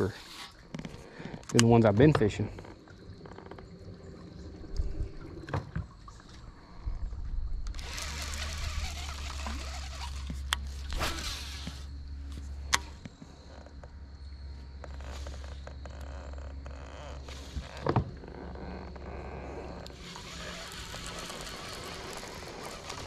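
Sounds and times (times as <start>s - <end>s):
electric motor humming: 7.7s - 11.8s, 19.0s - 23.0s
water churning from propeller: 7.7s - 11.9s, 19.4s - 23.0s.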